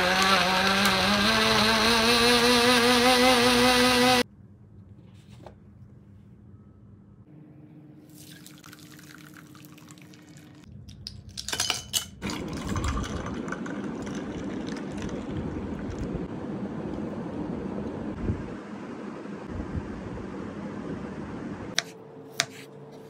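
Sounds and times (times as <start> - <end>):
juice pouring: 8.1 - 10.7, 12.2 - 16.3.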